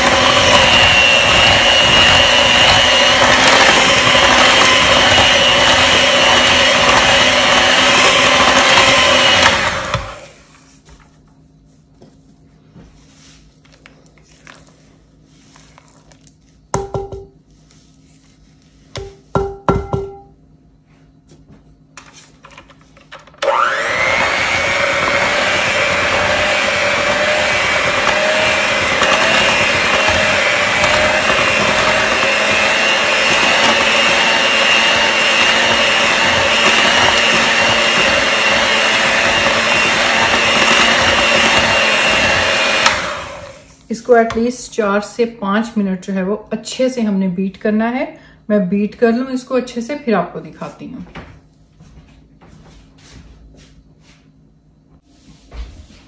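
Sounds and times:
electric mixer whining: 0.0 - 10.5, 23.3 - 43.8.

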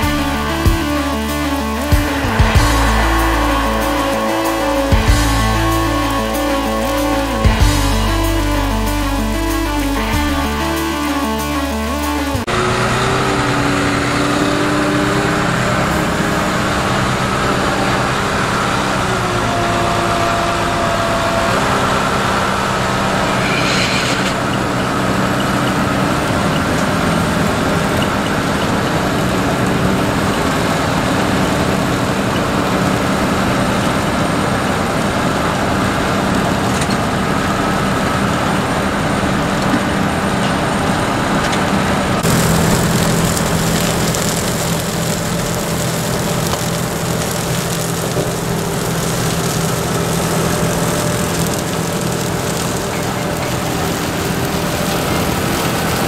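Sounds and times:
harvester engine hum: 0.0 - 56.0
digging and elevating machinery: 41.8 - 56.0.

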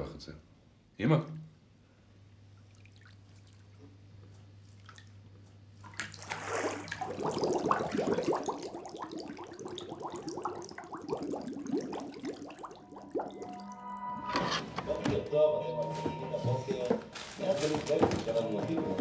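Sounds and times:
bath water swishing: 2.6 - 13.8
water bubbling and gurgling: 5.9 - 14.2.

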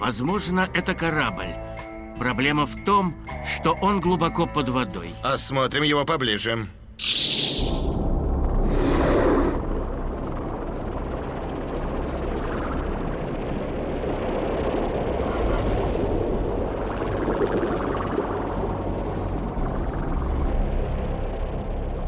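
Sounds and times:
low rumble: 6.8 - 22.0
rushing burst of bubbles: 15.2 - 19.8.

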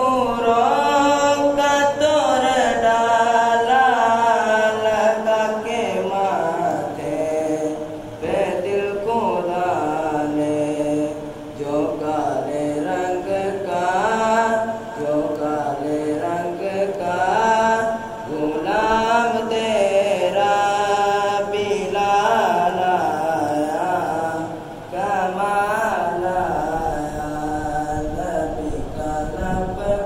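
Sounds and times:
person singing unaccompanied: 0.0 - 30.0.

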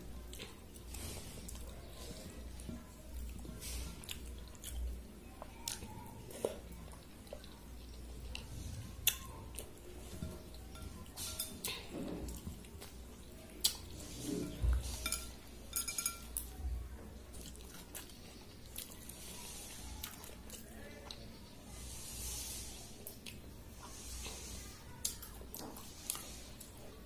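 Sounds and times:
clinks against bowl: 15.0 - 16.3
wet squishing of rice: 17.2 - 27.0.

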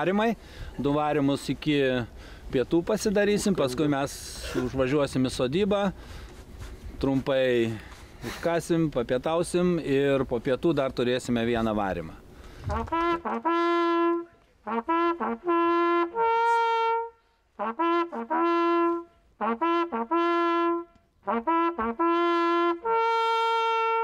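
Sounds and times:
hunting horn two-note signal: 3.4 - 4.3.

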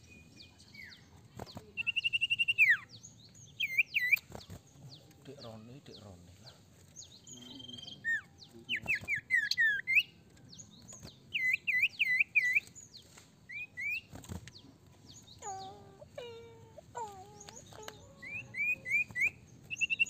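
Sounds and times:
bird singing whistled notes: 1.8 - 4.5, 7.0 - 15.8, 17.3 - 20.0.

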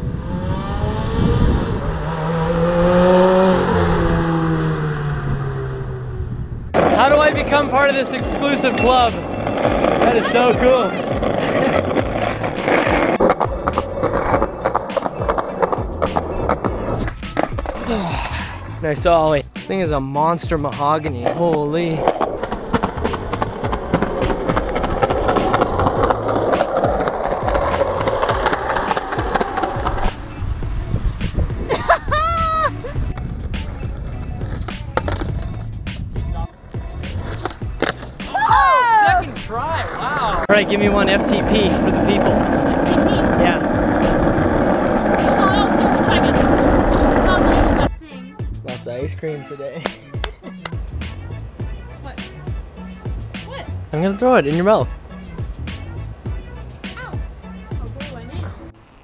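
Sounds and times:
road noise: 0.0 - 59.0
skateboard wheels rolling on concrete: 6.6 - 49.2, 49.8 - 59.0
skateboard clacks: 6.8 - 17.8, 21.2 - 30.6, 33.0 - 47.9, 49.8 - 50.9.

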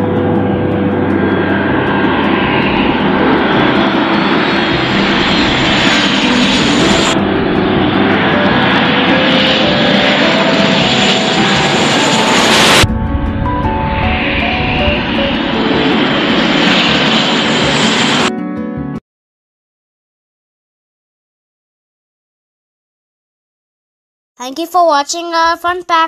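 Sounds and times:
jet passing low: 0.0 - 18.3.

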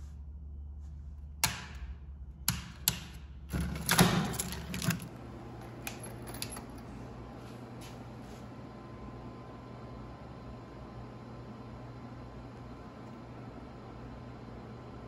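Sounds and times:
fire alarm pull station clicks: 2.5 - 6.8
key ring jangling: 3.5 - 6.9.

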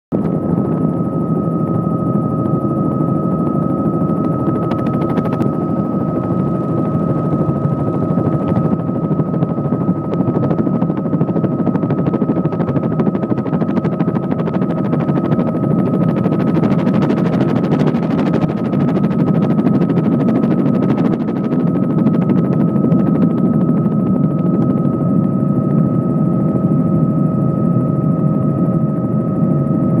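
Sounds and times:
helicopter rotor beat: 0.1 - 30.0
thin steady whine: 0.1 - 30.0.

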